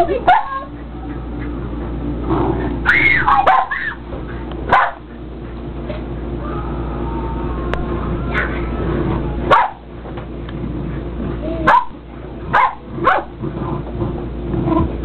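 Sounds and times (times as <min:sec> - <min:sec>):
dog barking: 0:00.2 - 0:00.7, 0:02.9 - 0:04.0, 0:04.7 - 0:05.2, 0:09.5 - 0:09.9, 0:11.6 - 0:13.4.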